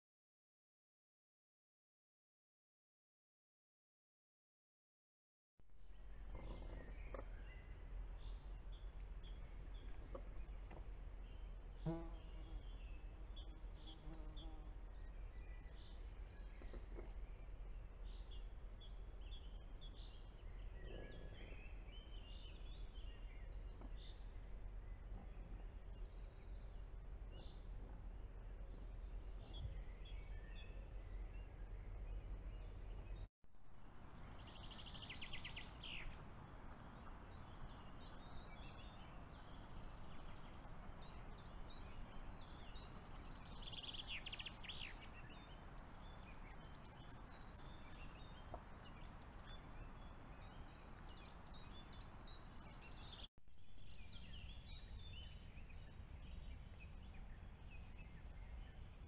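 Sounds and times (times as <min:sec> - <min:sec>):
distant songbird chirps: 0:05.7 - 0:59.0.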